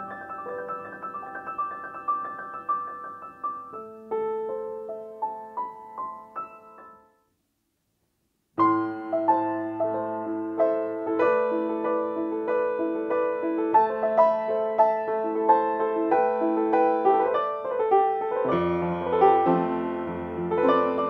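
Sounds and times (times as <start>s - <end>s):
upright piano playing: 0.0s - 7.1s, 8.6s - 21.0s.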